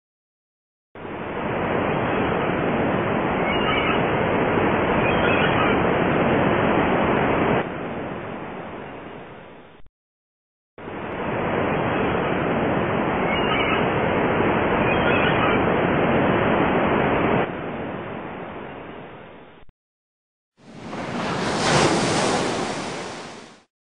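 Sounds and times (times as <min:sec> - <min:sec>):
ocean surf rushing: 0:01.0 - 0:08.9, 0:10.8 - 0:18.7, 0:20.6 - 0:23.7.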